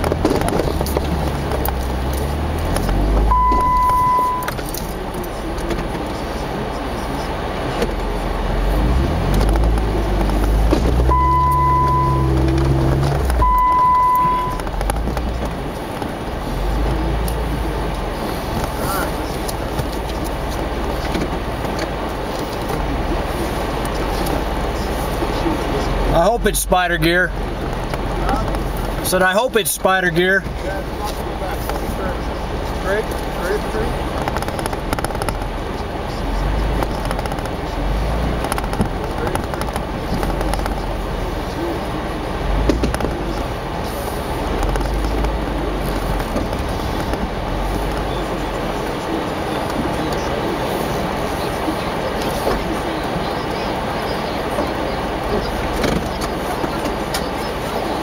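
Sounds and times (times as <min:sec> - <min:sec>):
drivetrain clicks and knocks: 0:00.0 - 0:06.2, 0:09.2 - 0:23.0, 0:34.0 - 0:41.6, 0:42.6 - 0:43.6, 0:44.4 - 0:50.4, 0:53.4 - 0:57.5
low rumble of drivetrain and tyres: 0:00.0 - 0:58.0
vehicle engine running: 0:00.0 - 0:58.0.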